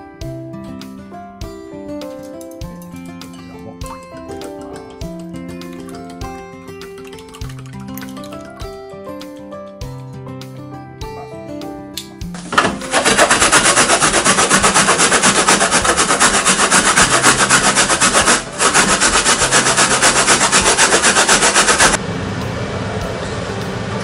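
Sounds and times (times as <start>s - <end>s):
radish grating on plastic grater: 12.7s - 22.0s.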